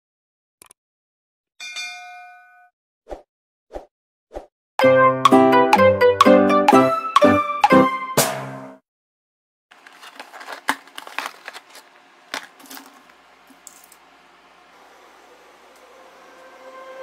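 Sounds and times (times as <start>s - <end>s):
hands handling brittle pods: 9.7s - 14.1s.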